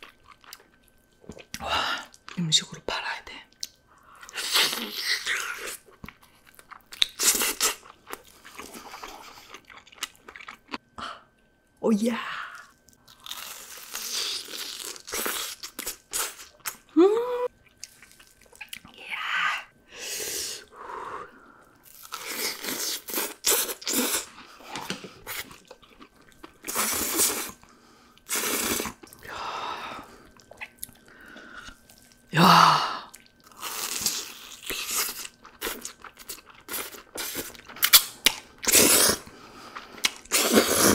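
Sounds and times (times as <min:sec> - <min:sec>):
crunching and chewing snacks: 0:03.6 - 0:10.8, 0:12.6 - 0:16.9, 0:17.6 - 0:19.0, 0:21.8 - 0:29.3, 0:33.1 - 0:40.9.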